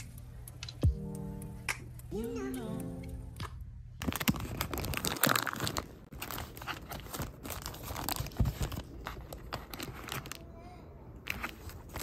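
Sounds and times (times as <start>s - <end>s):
plastic mailer bag crinkling and tearing: 4.0s - 10.4s.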